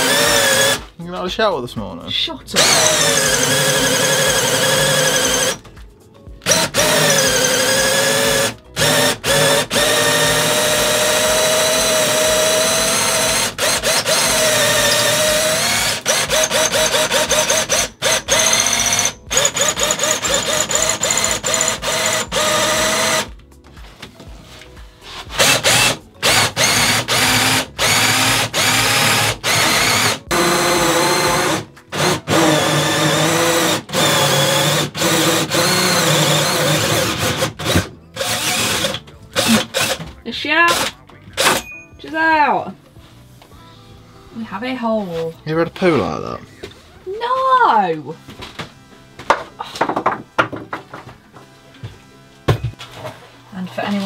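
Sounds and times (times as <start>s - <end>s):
cordless drill whining: 0.0s - 0.9s, 2.6s - 5.7s, 6.4s - 23.3s, 25.3s - 40.1s
drill trigger blipped: 0.0s - 0.9s, 2.6s - 5.6s, 6.4s - 23.3s, 25.3s - 40.1s, 40.7s - 41.7s.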